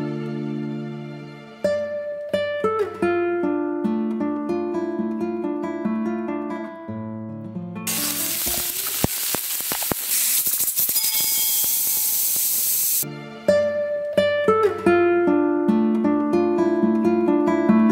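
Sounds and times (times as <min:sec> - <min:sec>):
guitar music: 0:00.0 - 0:10.0, 0:13.0 - 0:17.9
pressure cooker steam hissing: 0:07.9 - 0:13.0
valve clicks: 0:08.0 - 0:13.0.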